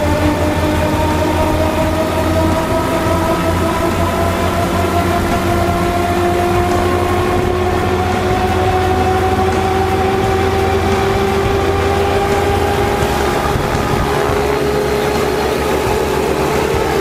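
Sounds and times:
engine and propeller drone: 0.0 - 17.0.

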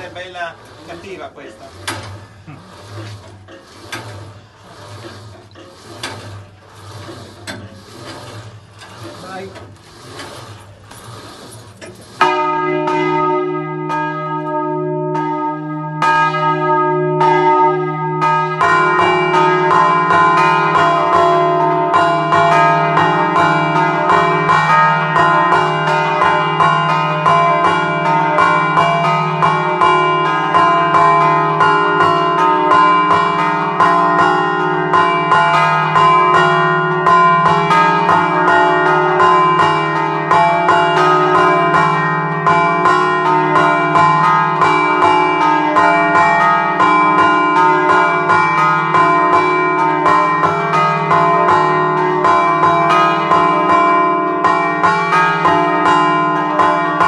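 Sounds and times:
church bells ringing: 0.0 - 3.4, 12.2 - 57.0
deep bell hum: 12.2 - 57.0.

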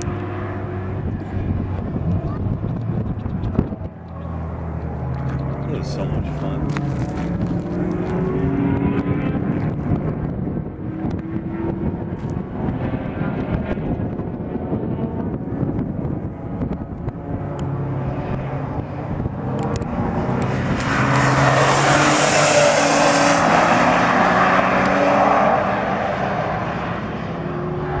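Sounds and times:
car engine passing by: 17.2 - 28.0.

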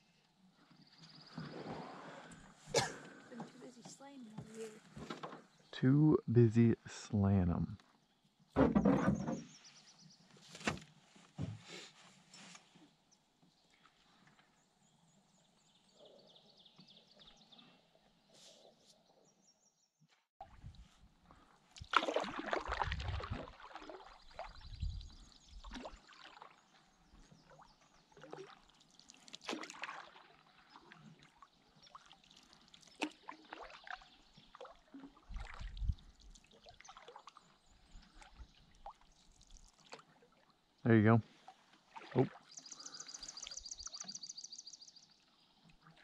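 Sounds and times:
water splashing and trickling: 0.6 - 6.2, 20.4 - 46.0
knocks against canoe hull: 8.6 - 9.5.

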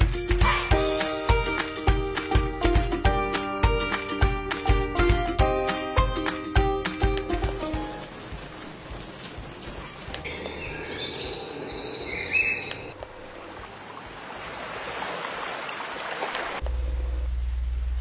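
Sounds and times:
rain hiss: 7.3 - 18.0
ocean waves: 8.0 - 16.6
birdsong chirping: 9.6 - 13.0.

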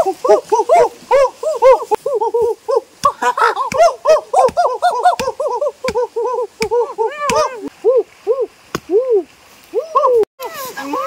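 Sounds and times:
many birds calling: 0.0 - 7.7.

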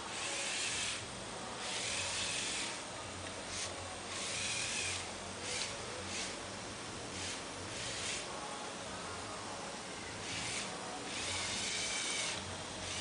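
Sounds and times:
toy truck motors whirring: 0.0 - 1.0, 1.6 - 2.8, 3.5 - 6.4, 7.1 - 8.3, 10.2 - 13.0.

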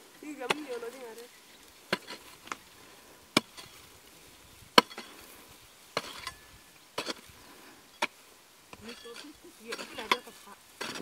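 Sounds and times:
hoe chopping into dry earth: 1.9 - 2.6, 3.3 - 3.9, 4.7 - 7.3, 8.0 - 11.0.

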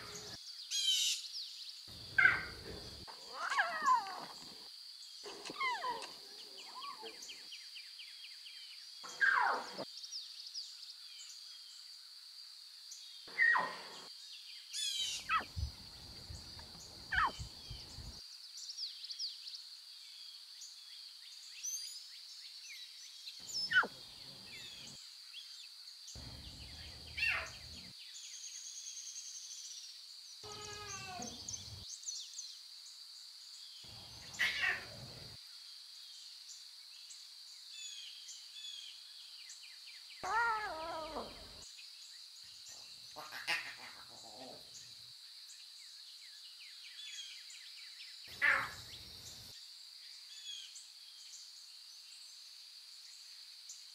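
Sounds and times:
bird calls: 0.0 - 1.3, 1.9 - 7.7, 9.0 - 9.9, 13.3 - 14.1, 14.8 - 18.2, 23.4 - 25.0, 26.2 - 27.9, 30.4 - 31.9, 33.8 - 35.4, 40.2 - 41.6, 42.7 - 44.9, 48.3 - 49.4
high insect buzz: 26.1 - 28.8, 30.4 - 32.0, 33.4 - 36.2, 48.2 - 50.6.

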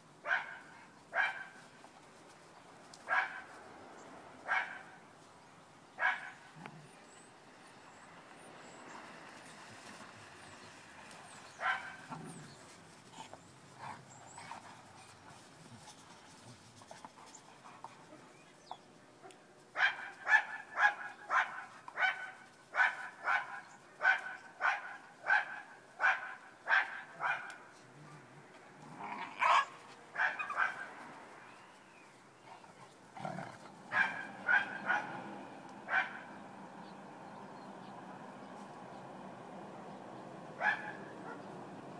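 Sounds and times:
dog barking: 0.3 - 1.6, 3.1 - 3.5, 4.5 - 5.0, 6.0 - 6.4, 11.6 - 12.2, 19.2 - 27.6, 29.4 - 30.9, 33.9 - 35.3, 35.9 - 36.4, 40.6 - 41.5.

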